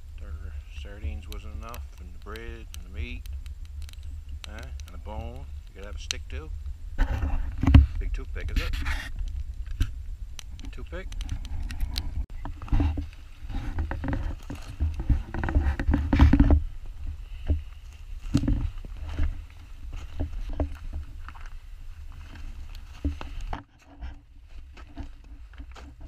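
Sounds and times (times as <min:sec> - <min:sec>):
low wind rumble: 0:00.0 - 0:26.0
clothing rustling on microphone: 0:11.2 - 0:26.0.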